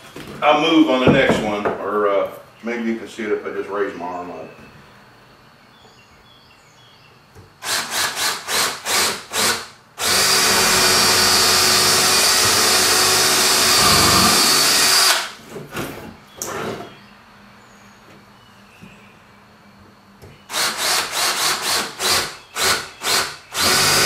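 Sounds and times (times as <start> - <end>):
cordless drill boring into wood: 7.6 - 15.4, 20.5 - 24.0.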